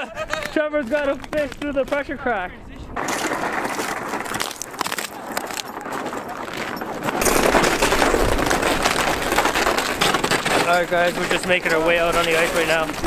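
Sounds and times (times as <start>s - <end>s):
dense crackling: 0.0s - 13.0s
wind buffeting microphone: 0.0s - 13.0s
deep rumble: 1.5s - 10.7s.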